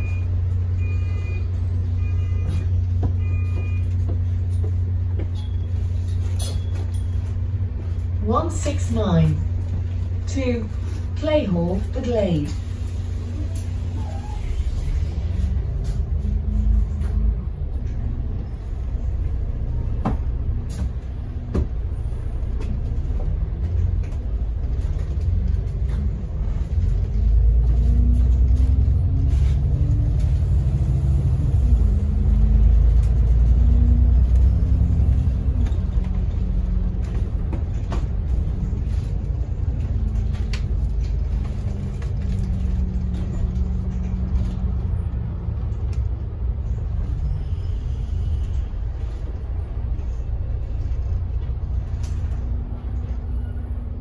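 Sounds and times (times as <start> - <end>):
bus engine and road rumble: 0.0 - 54.0.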